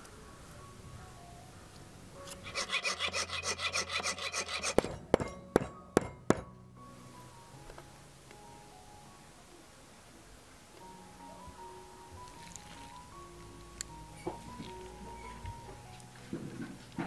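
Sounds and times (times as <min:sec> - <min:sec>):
rasping strokes on brass: 0:02.4 - 0:06.5
knife tapping on brass: 0:04.0 - 0:06.5.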